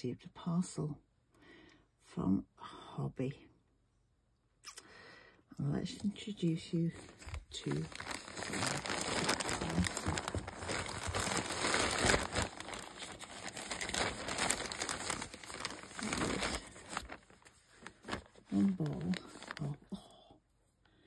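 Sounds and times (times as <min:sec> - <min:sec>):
plastic bag crinkling: 0:06.3 - 0:19.9.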